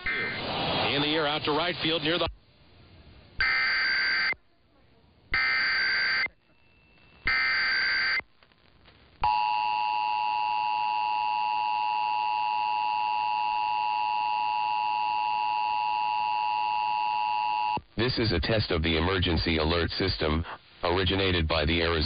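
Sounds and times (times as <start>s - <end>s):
warbling data burst: 0.0s - 2.3s, 5.4s - 8.2s.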